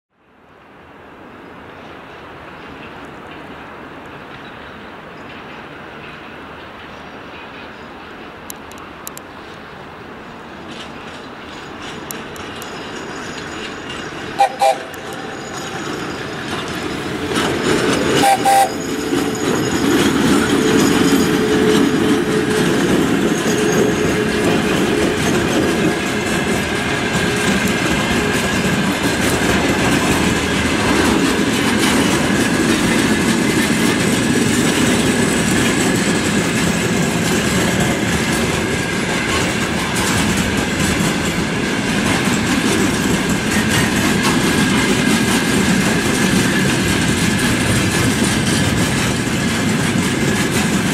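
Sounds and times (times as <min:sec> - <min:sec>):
train wheels rumbling and clacking: 0:01.7 - 0:50.9
locomotive horn toot: 0:14.4 - 0:15.7, 0:18.2 - 0:18.9.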